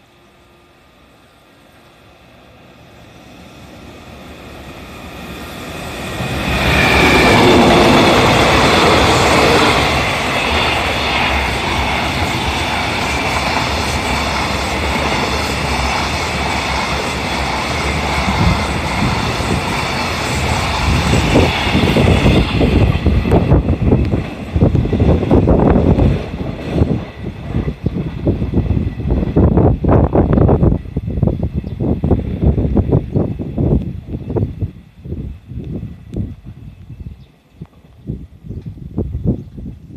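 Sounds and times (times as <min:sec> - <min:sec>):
freight train rumbling on rails: 0:00.0 - 0:39.9.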